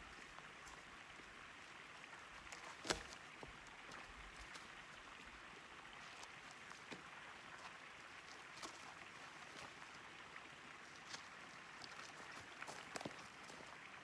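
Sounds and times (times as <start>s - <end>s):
faint outdoor hiss: 0.0s - 14.0s
logs and brush cracking: 2.2s - 4.7s, 6.0s - 10.0s, 10.8s - 13.6s.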